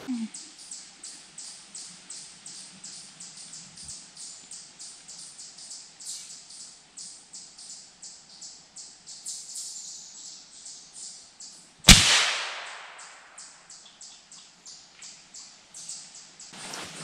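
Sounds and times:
faint high-pitched chirping: 0.0 - 11.7
gunshot: 11.9 - 13.3.

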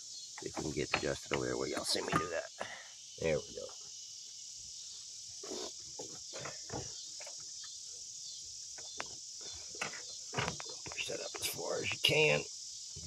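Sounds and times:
crickets chirring: 0.0 - 13.0
faint knocks and rubbing: 0.4 - 2.4, 5.4 - 7.8, 8.7 - 11.5.

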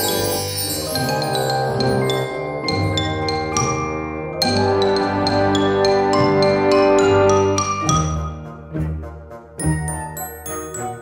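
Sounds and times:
bell-like melody over bass: 0.0 - 8.5, 9.6 - 11.0.

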